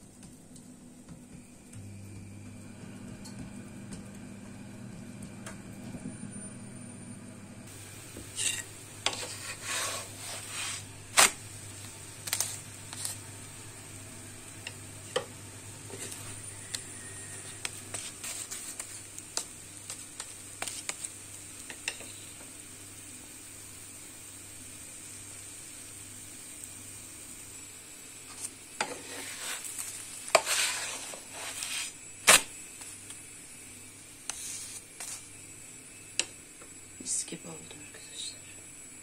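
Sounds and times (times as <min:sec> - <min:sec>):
faint hum: 0:00.0 - 0:39.0
flatbread popping in a pan: 0:11.1 - 0:13.2, 0:17.6 - 0:22.2.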